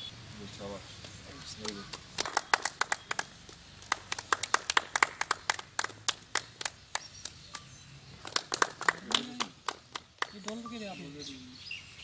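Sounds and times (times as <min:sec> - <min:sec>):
people clapping: 0:01.6 - 0:07.6, 0:08.2 - 0:10.7.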